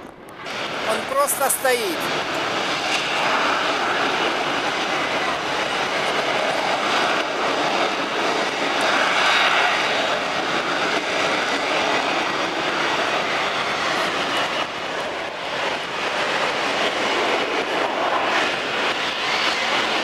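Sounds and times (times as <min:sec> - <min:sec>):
jet engine roaring: 0:00.0 - 0:20.0.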